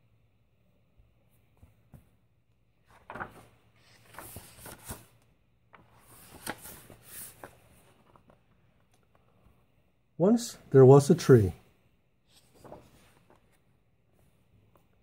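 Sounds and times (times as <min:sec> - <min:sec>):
book pages being turned: 0:02.8 - 0:09.3, 0:12.3 - 0:13.7.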